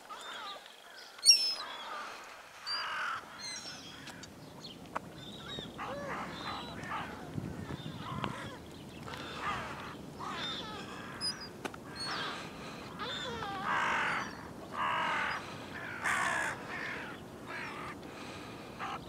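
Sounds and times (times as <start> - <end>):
gulls calling: 0.0 - 19.0.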